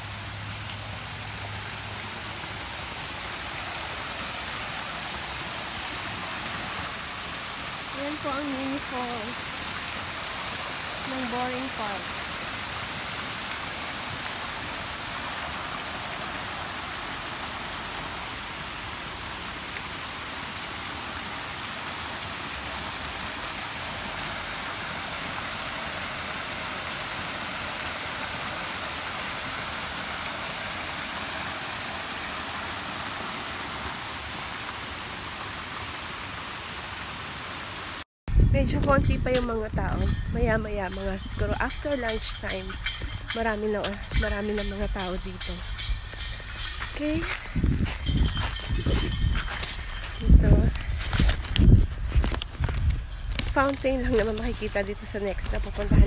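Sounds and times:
small waterfall rushing: 0.0s - 38.1s.

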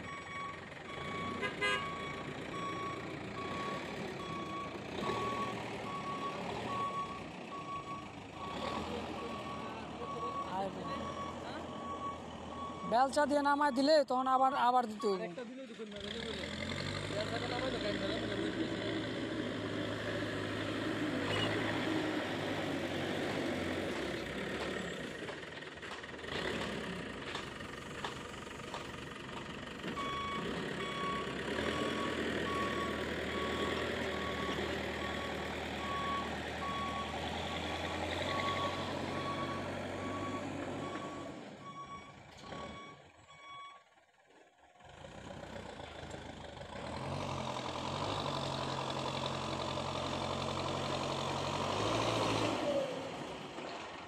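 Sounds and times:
reversing alarm beeping: 0.0s - 14.1s, 30.0s - 43.8s
diesel engine running: 0.0s - 54.0s.

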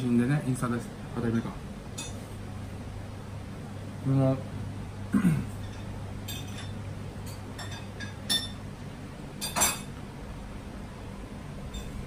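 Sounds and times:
tableware clinking: 5.6s - 8.6s, 9.4s - 9.9s.

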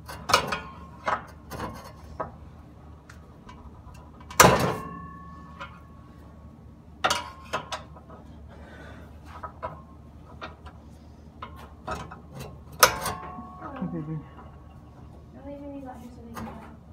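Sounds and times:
metal knocks and clanks on exhaust pipe: 0.0s - 2.4s, 3.4s - 5.9s, 7.0s - 8.2s, 11.4s - 13.8s.

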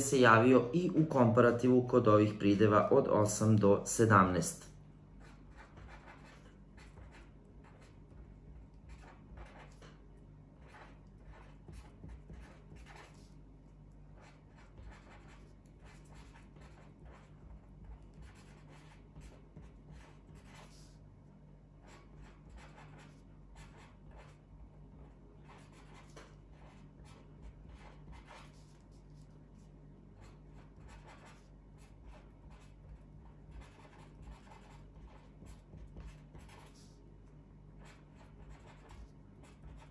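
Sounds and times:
low steady hum: 0.0s - 39.9s
pen scratching on paper: 5.2s - 10.0s, 10.6s - 13.4s, 14.0s - 21.0s, 21.8s - 37.0s, 37.8s - 39.9s.

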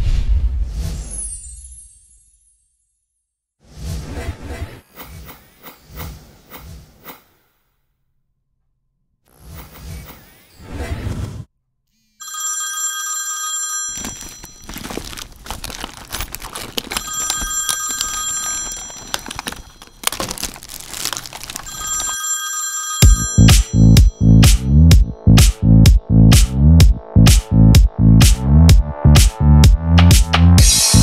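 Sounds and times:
mobile phone ringtone: 12.2s - 14.7s, 17.0s - 19.9s, 21.7s - 24.4s
rummaging through a handbag: 13.4s - 23.5s
electronic music with a beat: 23.0s - 31.0s.

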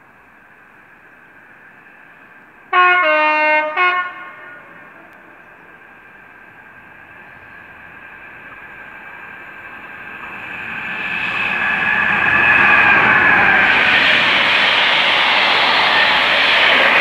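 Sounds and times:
diesel locomotive engine: 0.0s - 17.0s
train wheel noise: 0.0s - 17.0s
high whine: 10.2s - 17.0s.

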